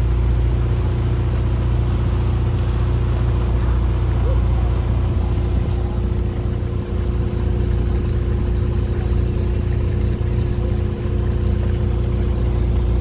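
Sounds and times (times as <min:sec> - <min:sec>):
motorboat engine droning: 0:00.0 - 0:13.0
water rushing: 0:00.0 - 0:13.0.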